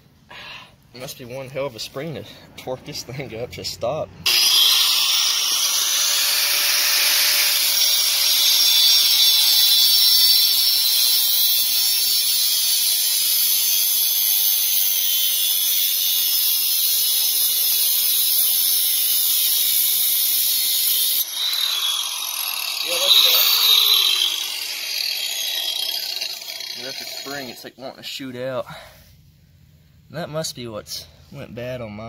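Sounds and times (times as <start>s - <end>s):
angle grinder cutting metal: 4.2s - 27.8s.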